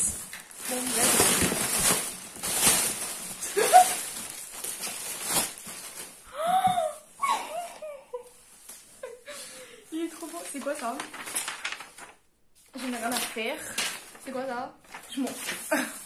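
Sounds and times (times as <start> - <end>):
plastic packing pillows crinkling: 0.0 - 6.3, 10.0 - 12.2, 12.8 - 16.0.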